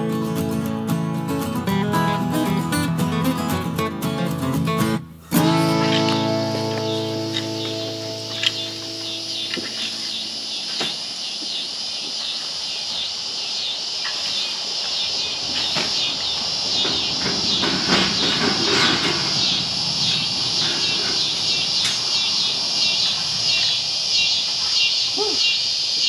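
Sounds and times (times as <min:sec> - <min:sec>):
pulsing insect chorus drone: 0:05.3 - 0:26.0
scattered knocks: 0:16.8 - 0:22.1.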